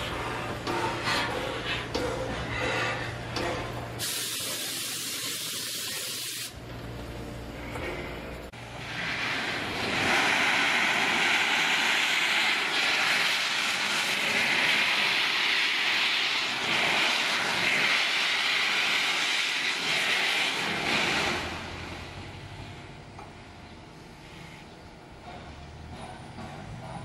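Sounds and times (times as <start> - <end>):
steam hissing loudly: 4.0 - 6.6, 8.6 - 22.8.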